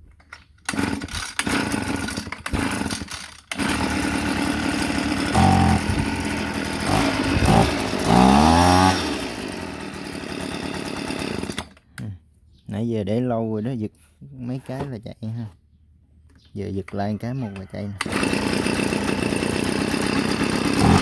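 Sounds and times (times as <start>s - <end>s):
leaf blower engine revving: 0.7s - 11.8s, 18.0s - 21.0s.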